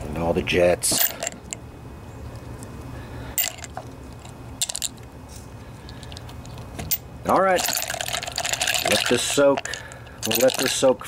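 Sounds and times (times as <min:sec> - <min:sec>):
low steady hum: 0:00.0 - 0:11.0
small metal parts clinking: 0:00.9 - 0:01.6, 0:03.4 - 0:05.0, 0:05.8 - 0:11.0.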